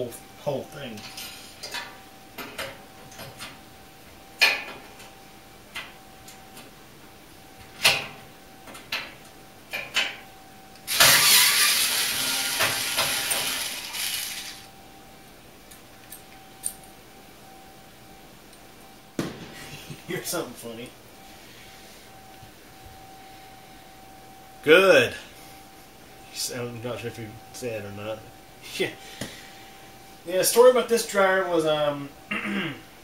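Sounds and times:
cordless drill running: 10.9s - 14.7s.

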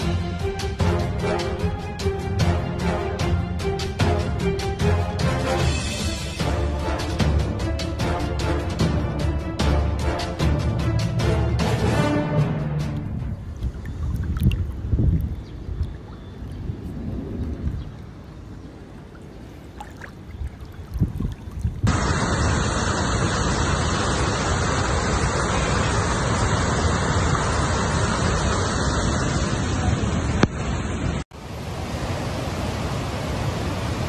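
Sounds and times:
roar of rushing water: 13.3s - 34.0s.

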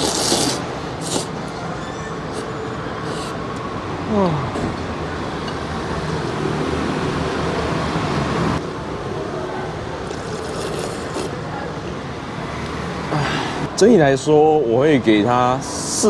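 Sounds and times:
soup slurped from a spoon: 0.0s - 1.5s, 10.0s - 11.4s
street traffic: 0.0s - 16.0s.

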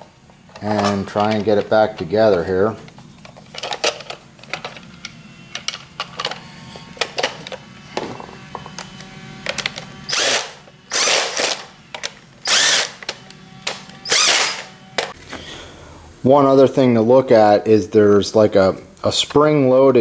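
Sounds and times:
plastic parts clicking and knocking: 3.2s - 6.4s
cordless drill whirring: 8.0s - 11.8s, 12.4s - 15.1s.

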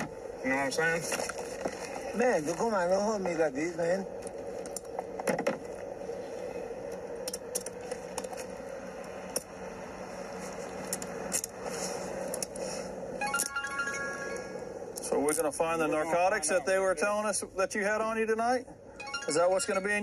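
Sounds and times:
phone ringtone: 13.2s - 14.8s, 19.0s - 20.0s.

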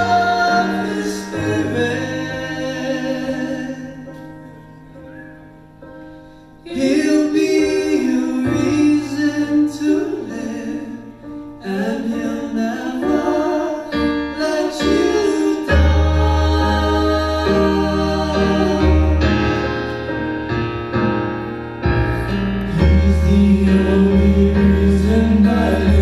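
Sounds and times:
men singing in harmony: 0.0s - 4.2s, 6.7s - 19.8s, 22.7s - 26.0s
electric bass: 21.8s - 26.0s.

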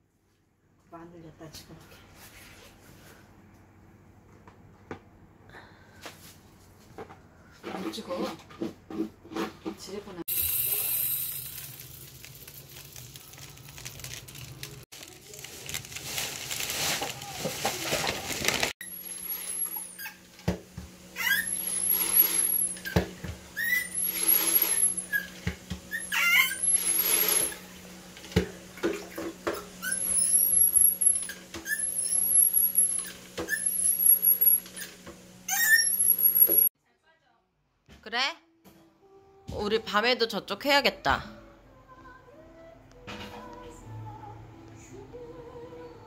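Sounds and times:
rice pouring through metal funnel: 10.3s - 19.8s, 26.6s - 27.6s.

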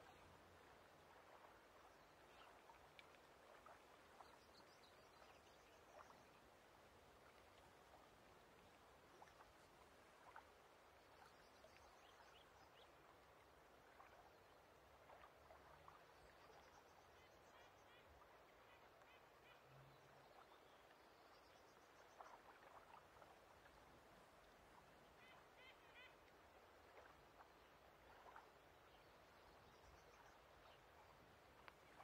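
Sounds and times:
faint clicks: 2.8s - 3.7s, 31.5s - 32.0s.

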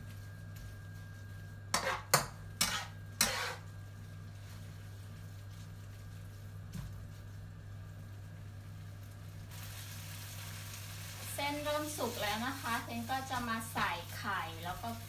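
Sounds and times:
steady low hum: 0.0s - 15.0s
metal spatula scraping wok: 1.7s - 3.7s.

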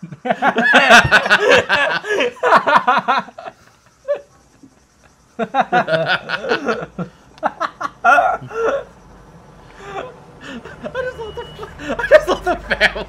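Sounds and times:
men laughing: 0.0s - 9.0s, 9.6s - 13.0s.

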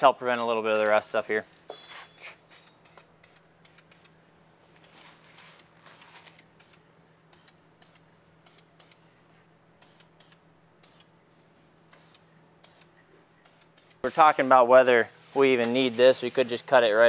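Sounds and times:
aerosol can spraying: 2.5s - 4.1s, 9.8s - 11.1s, 11.9s - 14.6s.

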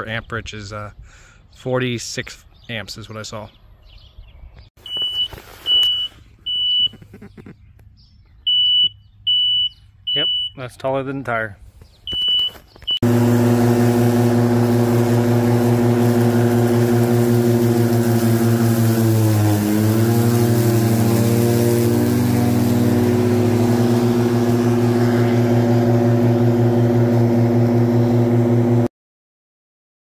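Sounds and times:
riding mower humming: 12.8s - 28.9s.

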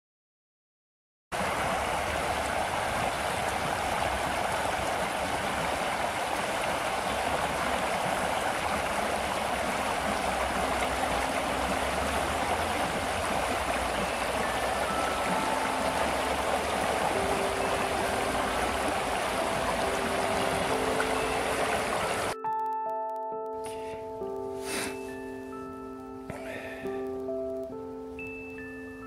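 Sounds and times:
river rushing over rocks: 1.4s - 22.4s.

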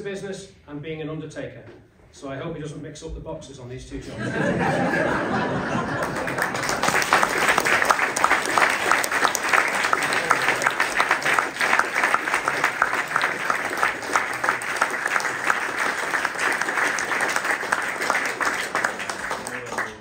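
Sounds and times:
audience applauding: 4.3s - 20.0s.

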